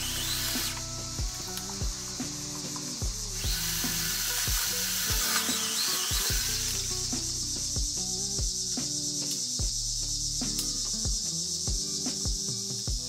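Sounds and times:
mini chainsaw cutting tree limb: 0.0s - 7.3s
background music with beat: 0.0s - 13.0s.

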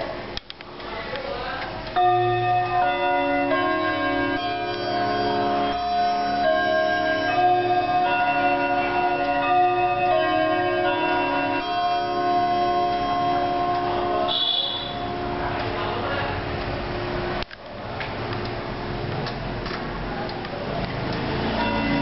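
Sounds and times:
clock chime melody: 1.9s - 16.0s, 21.4s - 22.0s.

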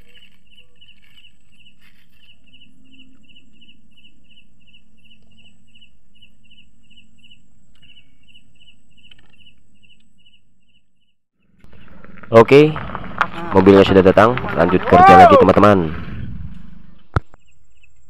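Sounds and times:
cricket chirping: 0.0s - 11.9s, 17.3s - 18.0s.

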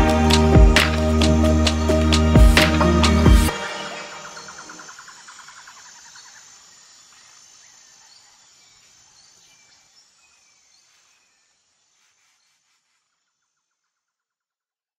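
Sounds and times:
insects trilling: 3.5s - 14.3s.

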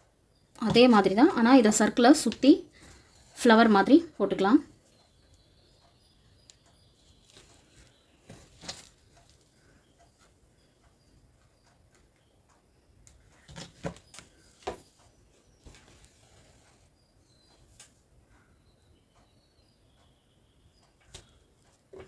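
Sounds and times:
needle and thread through cloth: 6.4s - 10.4s, 13.1s - 18.0s
soft rustles and taps: 7.0s - 10.4s, 13.0s - 16.9s.

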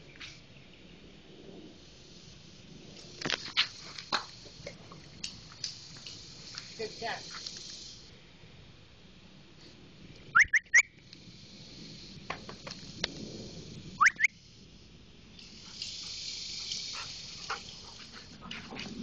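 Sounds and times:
steady high hiss: 0.0s - 19.0s
person whistling: 10.4s - 10.8s.

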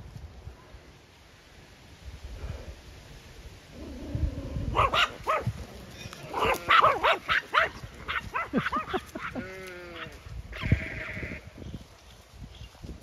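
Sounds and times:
small dogs yapping: 4.6s - 9.4s
horses galloping: 5.2s - 10.5s.

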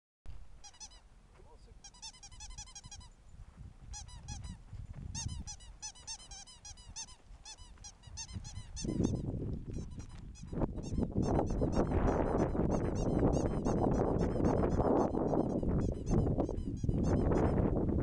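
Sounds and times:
ferret chirping clucks: 1.8s - 3.2s, 5.2s - 17.6s.

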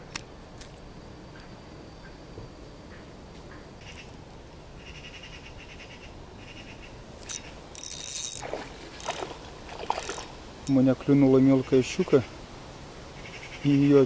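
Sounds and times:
fishing reel whirring: 7.2s - 10.8s.

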